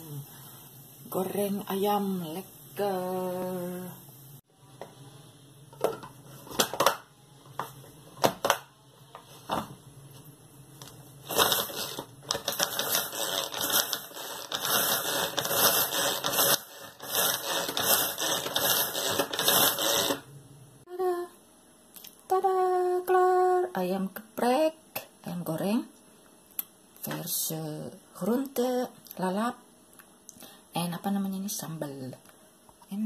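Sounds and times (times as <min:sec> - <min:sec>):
food chopper blades rattling: 0:11.3 - 0:20.2.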